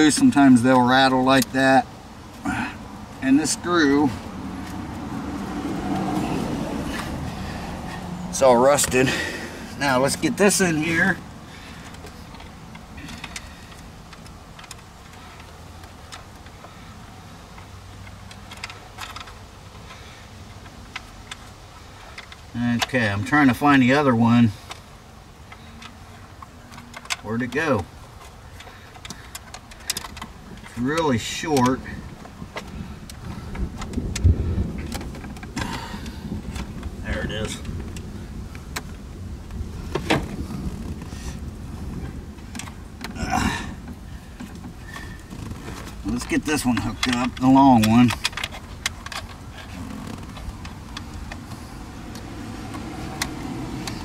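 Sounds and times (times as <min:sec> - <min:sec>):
rustling: 0:32.0 - 0:54.0.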